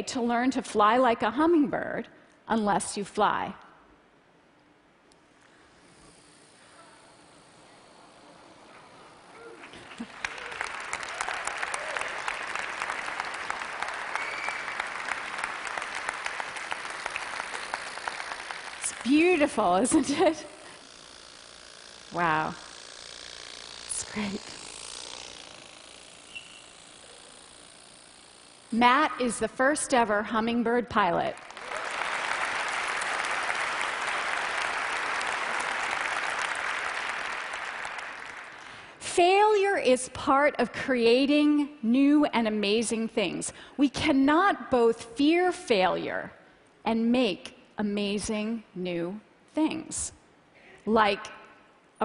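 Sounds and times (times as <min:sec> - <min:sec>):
audience applauding: 0:09.6 - 0:19.6, 0:31.4 - 0:38.8.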